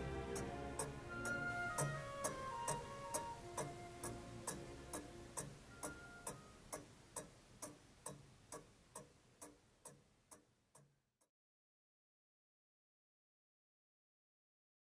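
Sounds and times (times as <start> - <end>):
mechanical clock ticking: 0.0 - 11.0.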